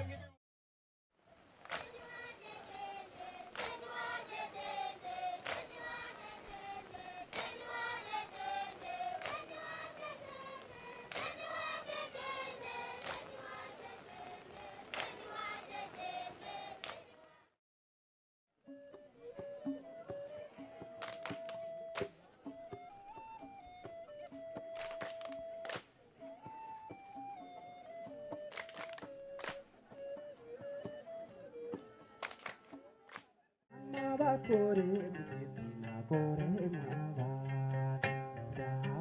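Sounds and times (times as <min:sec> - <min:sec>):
children singing together: 0:01.8 - 0:16.8.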